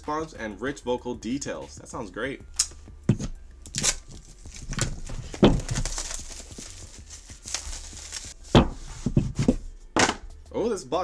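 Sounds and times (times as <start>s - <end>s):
plastic wrap tearing and crinkling: 3.7s - 8.4s
box knocking on wooden table: 8.5s - 10.3s.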